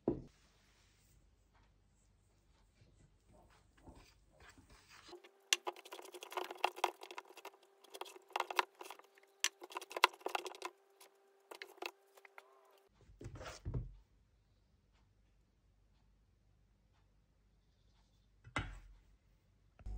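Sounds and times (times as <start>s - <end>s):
whisk clicking against metal bowl: 5.5s - 10.7s.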